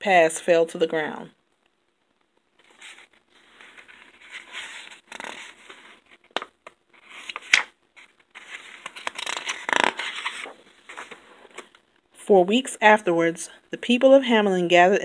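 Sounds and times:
fingers rustling on book page: 0:02.6 - 0:11.8.

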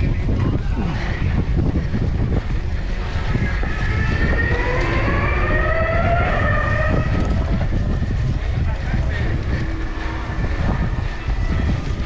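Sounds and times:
knobby tyres rumbling on dirt: 0:00.0 - 0:12.0
wind buffeting microphone: 0:00.0 - 0:12.0
rising pitched whine: 0:02.6 - 0:12.0.

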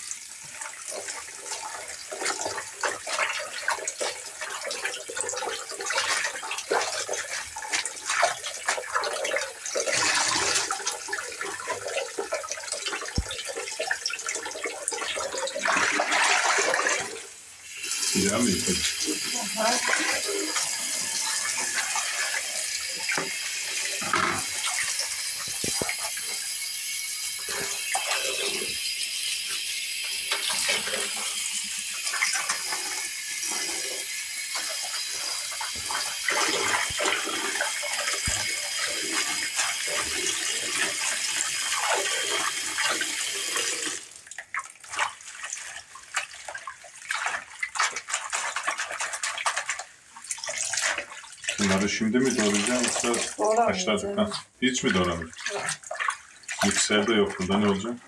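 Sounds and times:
tap water pouring into bowl: 0:00.0 - 0:58.0
leaves splashing in water: 0:44.6 - 0:53.6.

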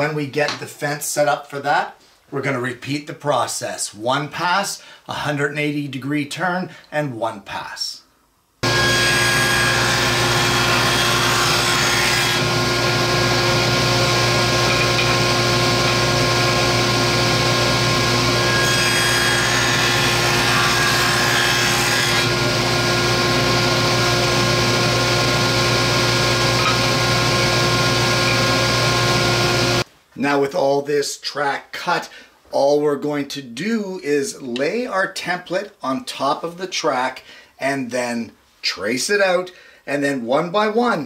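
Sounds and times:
saw blade cutting wood: 0:08.6 - 0:29.8
table saw running: 0:08.6 - 0:29.8.

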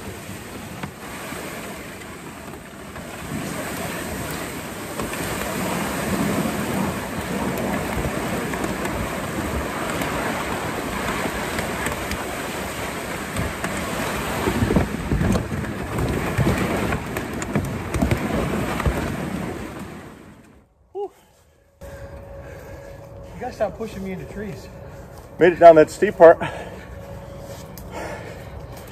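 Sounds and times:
brush rustling and scraping: 0:21.2 - 0:28.9.

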